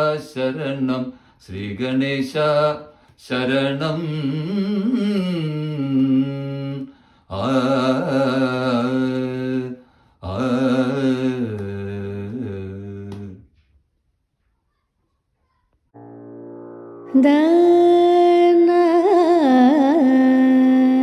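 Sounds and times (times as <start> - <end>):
man singing alone: 0.0 - 13.5.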